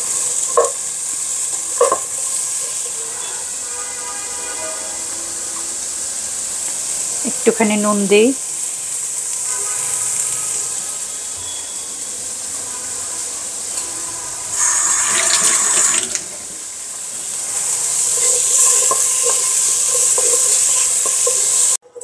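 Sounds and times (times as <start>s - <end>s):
vegetables sizzling in oil: 0.0s - 22.0s.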